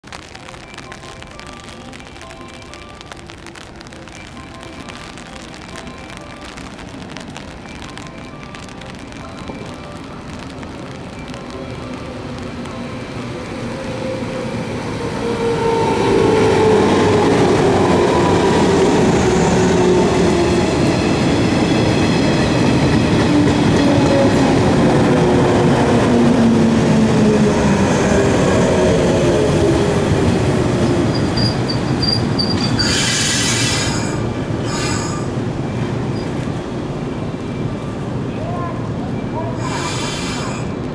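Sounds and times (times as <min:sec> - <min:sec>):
train wheels rumbling on rails: 0:06.4 - 0:40.9
thin high brake squeal: 0:31.2 - 0:35.3, 0:39.6 - 0:40.7
short loud hisses: 0:39.6 - 0:40.7.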